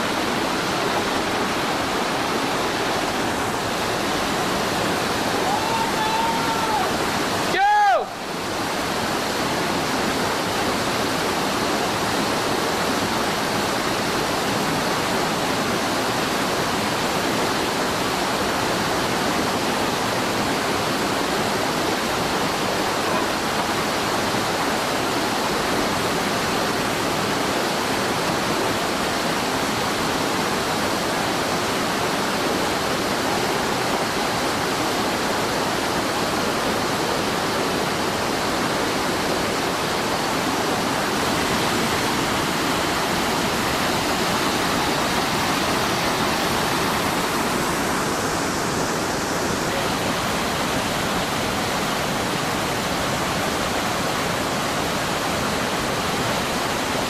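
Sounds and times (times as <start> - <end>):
water rushing over rocks: 0.0 - 57.0.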